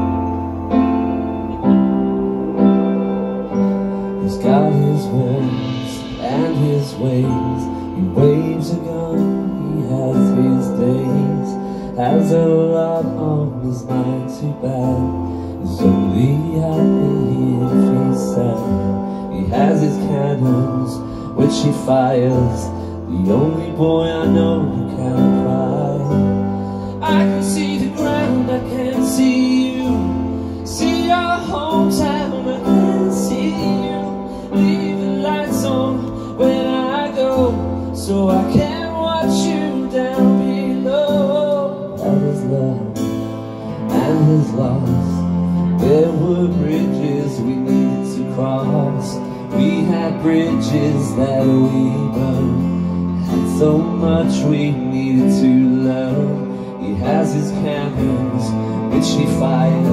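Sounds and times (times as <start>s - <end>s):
keyboard chords: 0.0s - 59.9s
man singing: 0.0s - 59.9s
strummed acoustic guitar: 3.6s - 59.9s.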